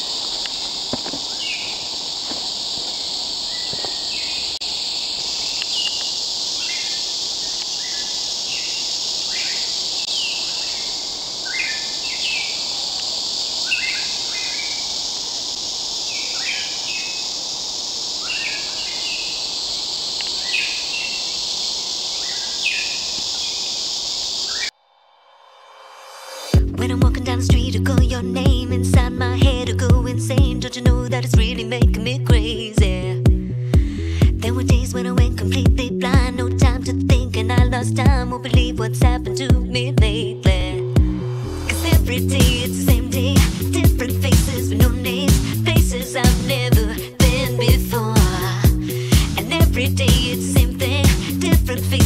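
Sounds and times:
steady high-pitched hiss: 0:00.0 - 0:52.0
bird chirps: 0:01.2 - 0:15.0, 0:16.0 - 0:17.4, 0:18.0 - 0:24.8.

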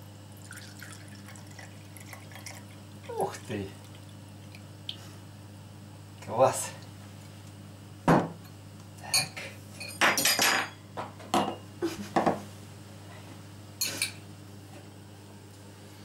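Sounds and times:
glass and cutlery clinking: 0:09.1 - 0:10.8, 0:13.8 - 0:14.2.

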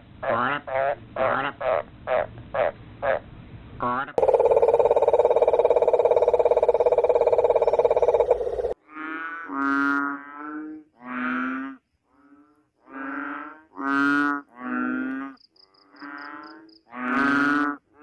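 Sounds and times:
frog buzzy calls: 0:04.2 - 0:10.1, 0:12.9 - 0:17.8.

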